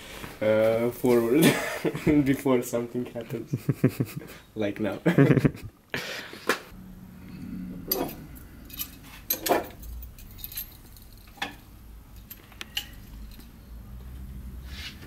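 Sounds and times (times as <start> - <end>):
metal parts clinking: 7.8 - 13.6.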